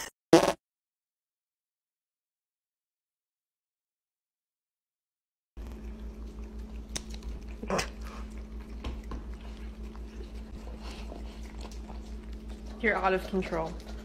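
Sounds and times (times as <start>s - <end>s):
animals licking and chewing: 5.6s - 14.0s
steady low hum: 5.6s - 14.0s
wet smacks and clicks: 6.7s - 10.4s.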